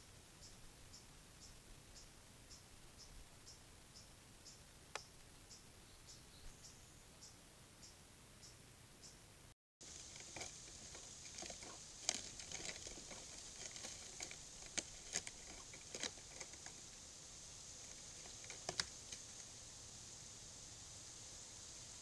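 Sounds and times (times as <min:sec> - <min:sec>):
microphone hiss: 0:00.0 - 0:22.0
animal stepping over dry leaves: 0:09.8 - 0:19.5.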